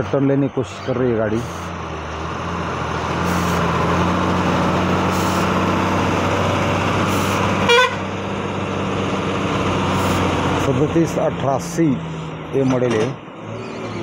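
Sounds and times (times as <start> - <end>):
truck diesel engine running: 0.0 - 14.0
truck horn toot: 7.1 - 8.1.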